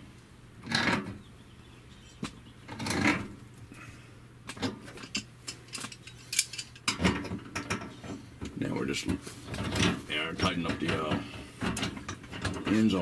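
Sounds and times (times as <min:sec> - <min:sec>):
hand tool clinking on metal fittings: 0:05.0 - 0:07.0.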